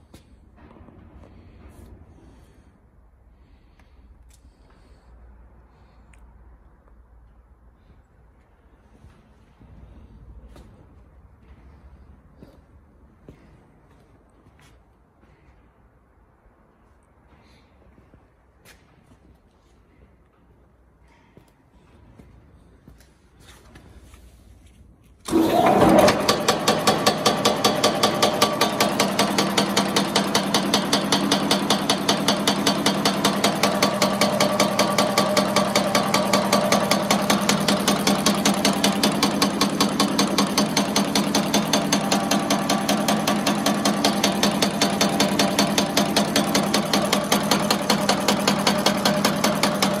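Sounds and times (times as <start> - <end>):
machine hum: 25.3 - 50.0
machine metallic clatter: 25.3 - 50.0.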